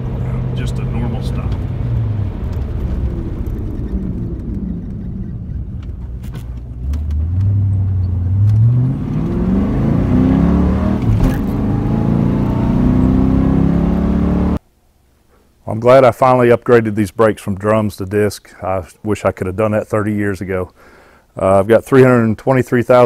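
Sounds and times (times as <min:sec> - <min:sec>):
car engine from inside cabin: 0:00.0 - 0:14.6.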